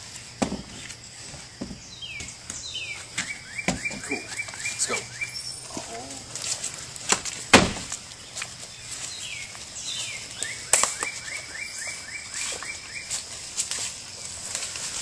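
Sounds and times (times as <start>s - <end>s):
songbird singing: 0.0s - 14.5s
footsteps crunching leaves: 0.0s - 15.0s.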